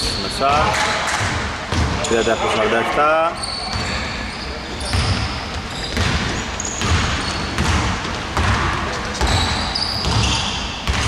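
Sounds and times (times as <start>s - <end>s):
sneakers squeaking on wooden floor: 0.0s - 11.0s
basketball bouncing on hardwood: 5.9s - 11.0s.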